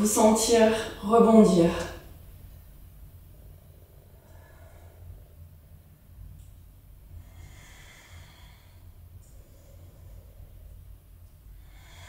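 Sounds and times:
low steady hum: 0.0s - 12.0s
woman breathing in: 4.0s - 5.6s, 7.1s - 10.9s, 11.6s - 12.0s.

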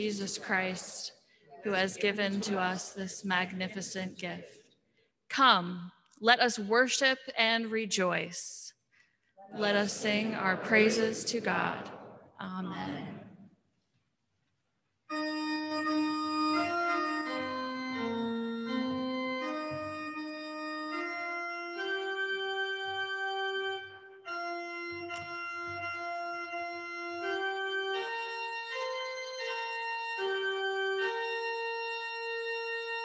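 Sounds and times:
church organ playing hymn: 15.1s - 33.0s.

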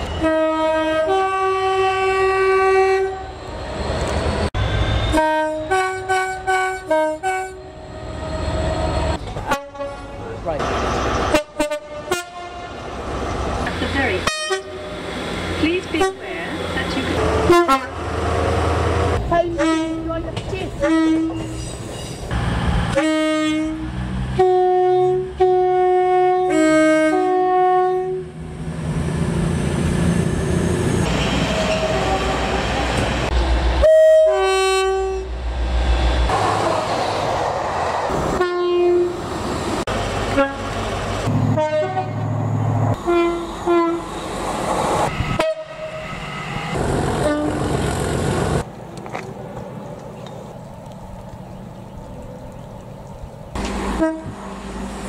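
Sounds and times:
rumble of trains running: 0.0s - 55.0s
train two-tone horn blasts: 0.2s - 3.3s, 4.6s - 7.8s, 9.4s - 10.3s, 11.3s - 12.8s, 14.2s - 15.0s, 15.8s - 18.0s, 19.3s - 20.2s, 20.8s - 21.5s, 22.9s - 28.4s, 33.8s - 35.4s, 38.4s - 39.2s, 40.3s - 40.7s, 41.5s - 42.2s, 43.0s - 44.1s, 45.3s - 46.1s, 47.2s - 47.8s, 53.9s - 54.4s.

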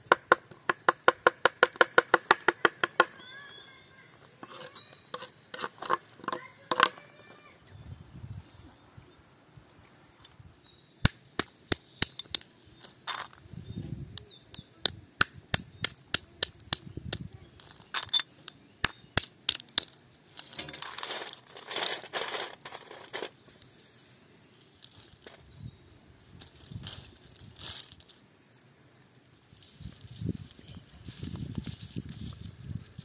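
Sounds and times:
stone knocking walnuts on stone: 0.0s - 3.1s
nut shells crackling: 11.4s - 13.4s, 15.2s - 23.4s, 26.4s - 28.2s.

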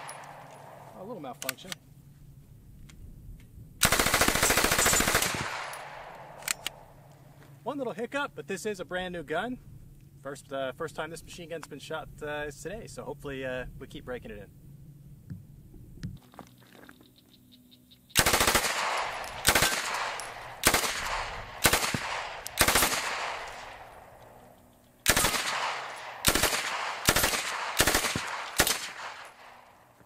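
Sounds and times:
submachine gun bursts: 3.8s - 6.7s, 18.2s - 23.8s, 25.0s - 29.5s
gunshot echo: 4.7s - 6.9s, 18.2s - 24.2s, 25.1s - 29.7s.

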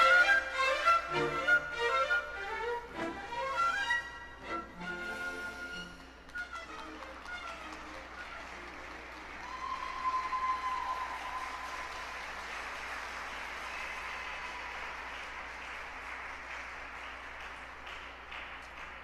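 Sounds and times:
waltz music: 0.0s - 8.9s
audience applauding: 5.2s - 19.0s.

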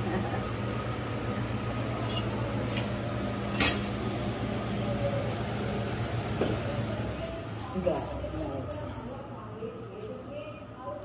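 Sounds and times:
steady low hum: 0.0s - 11.0s
metal kitchen utensils clinking: 1.9s - 2.9s, 3.5s - 4.0s, 6.4s - 9.5s.

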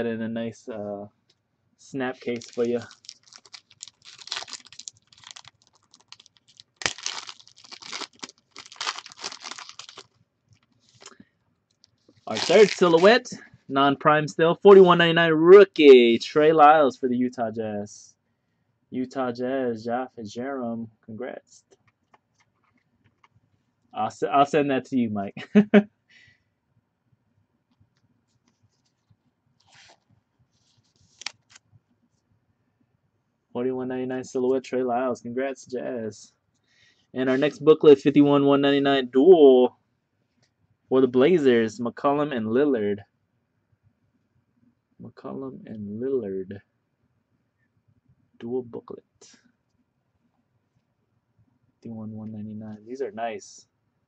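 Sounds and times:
card rustling: 2.2s - 11.2s, 12.1s - 13.3s, 29.6s - 31.6s
plastic wrapping crinkling: 2.2s - 11.2s, 11.9s - 13.2s, 30.6s - 31.6s.

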